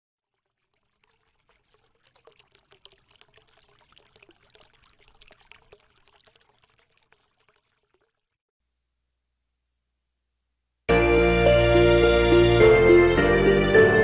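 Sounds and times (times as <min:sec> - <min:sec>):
crackling fizz of tiny clicks: 0:00.2 - 0:08.4.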